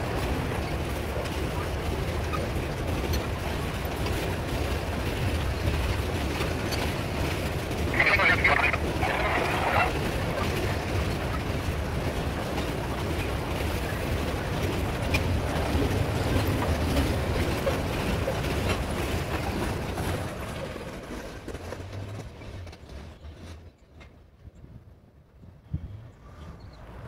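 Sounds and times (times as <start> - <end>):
freight train wheels rumbling: 0.0 - 27.0
wheels clicking on rail: 0.0 - 27.0.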